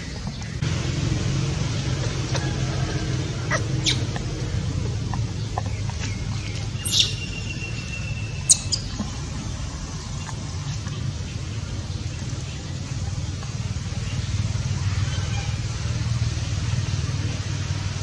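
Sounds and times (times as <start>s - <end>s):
low steady rumble: 0.0s - 18.0s
baby monkey squealing: 3.4s - 4.2s, 6.8s - 8.9s
baby monkey squeaking: 3.5s - 4.2s, 6.7s - 9.0s.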